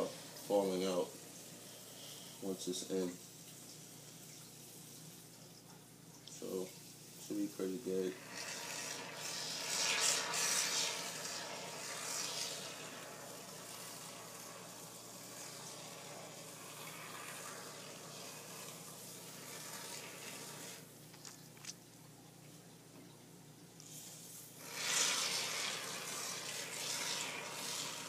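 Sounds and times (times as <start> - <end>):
aerosol foam hissing: 7.9 - 20.9, 23.8 - 28.0.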